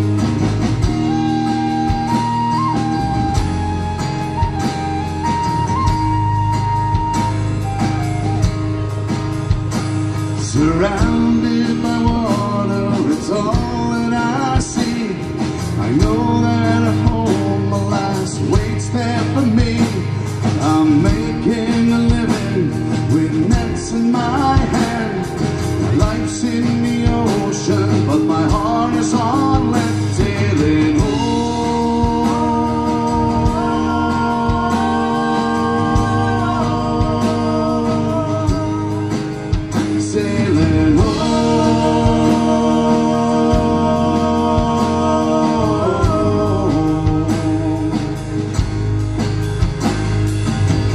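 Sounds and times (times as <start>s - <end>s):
wind instrument melody: 0.0s - 10.4s, 31.0s - 39.6s
acoustic guitar: 0.0s - 50.9s
drum kit: 0.0s - 50.9s
electric bass: 0.0s - 50.9s.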